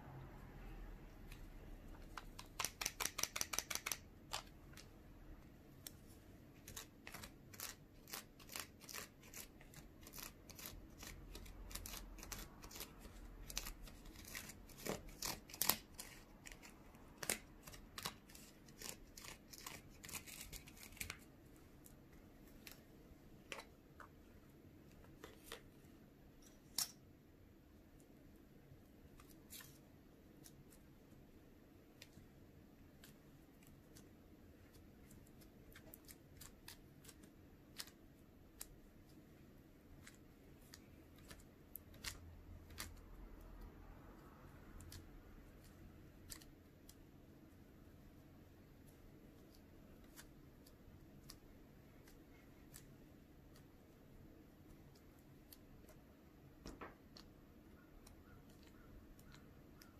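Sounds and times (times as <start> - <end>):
plastic spatula clicking in tray: 2.2 - 4.9.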